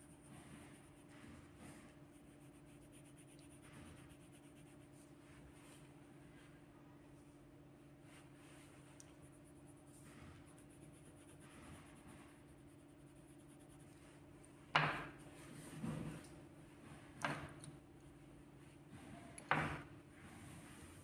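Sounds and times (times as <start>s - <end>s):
pencil scratching on paper: 0.0s - 5.1s, 9.2s - 14.1s.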